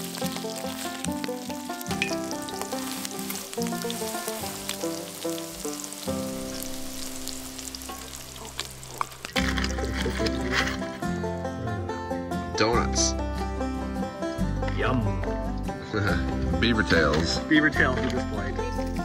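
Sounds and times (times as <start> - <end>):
food frying and sizzling: 0.0 - 11.4
instrumental background music: 0.0 - 19.0.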